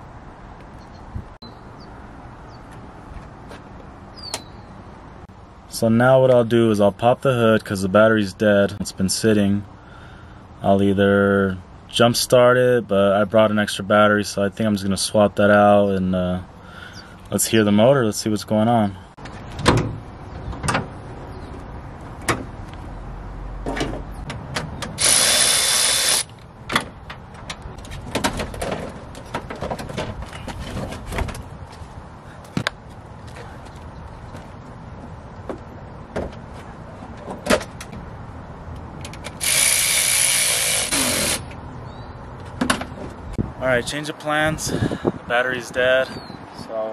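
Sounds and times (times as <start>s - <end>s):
whirring hiss bursts: 25.0s - 26.3s, 39.4s - 41.5s
car battery clicking and clattering: 26.2s - 31.5s.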